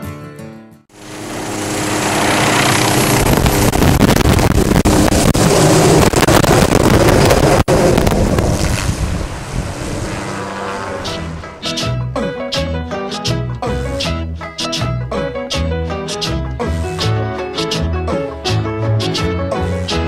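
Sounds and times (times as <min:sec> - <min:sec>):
helicopter rotor and engine: 0:00.9 - 0:11.6
rotor wash buffeting microphone: 0:01.0 - 0:12.0.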